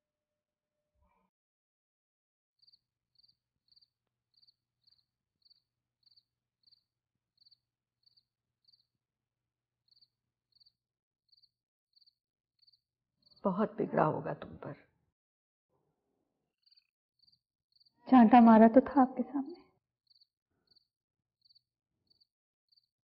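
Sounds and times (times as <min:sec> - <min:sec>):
insect chirping: 0:02.6 - 0:08.9, 0:09.9 - 0:13.5, 0:16.6 - 0:17.9, 0:20.1 - 0:22.9.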